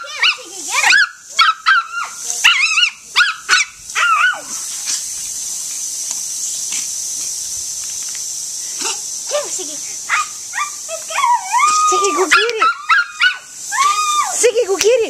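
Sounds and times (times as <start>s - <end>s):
small dog yipping barks: 0.0s - 4.5s, 10.1s - 10.8s, 11.8s - 13.5s
lawn sprinkler spray hissing: 0.0s - 15.0s.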